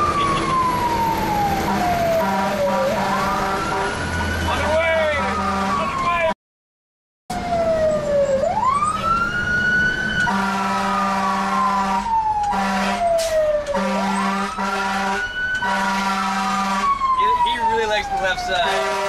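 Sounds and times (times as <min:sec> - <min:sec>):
fire engine siren wailing: 0:00.0 - 0:06.4, 0:07.3 - 0:19.0
truck air horn blasts: 0:01.7 - 0:04.2, 0:05.1 - 0:05.9, 0:10.3 - 0:16.9, 0:18.6 - 0:19.0.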